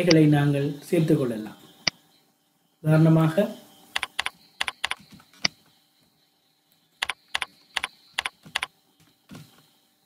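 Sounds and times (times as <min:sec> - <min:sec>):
computer keyboard typing: 0:04.0 - 0:05.5, 0:07.0 - 0:08.7.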